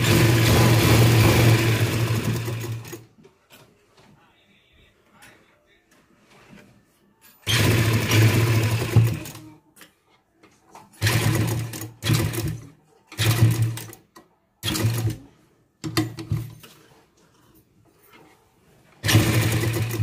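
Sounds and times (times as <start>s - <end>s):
sewing machine stitching: 0.0s - 3.1s, 7.4s - 9.5s, 11.0s - 16.7s, 19.0s - 20.0s.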